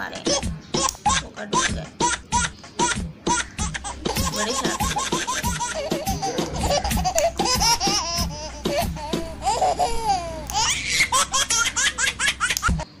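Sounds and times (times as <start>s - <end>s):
high-pitched giggling laughter: 0.3s - 12.9s
sharp clicks: 0.7s - 1.1s, 12.4s - 12.8s.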